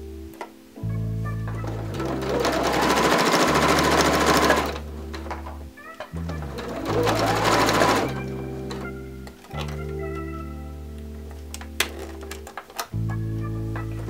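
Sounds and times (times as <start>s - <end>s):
background music: 0.0s - 14.0s
sewing machine stitching: 1.6s - 5.4s, 6.2s - 8.9s.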